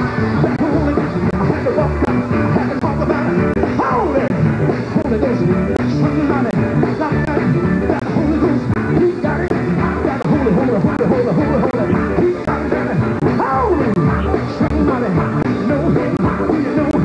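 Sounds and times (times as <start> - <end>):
electric guitar: 0.0 - 17.0.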